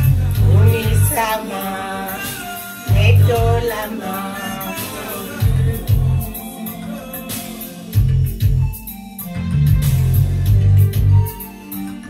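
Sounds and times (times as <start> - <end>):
gospel song with bass and drums: 0.0 - 12.0.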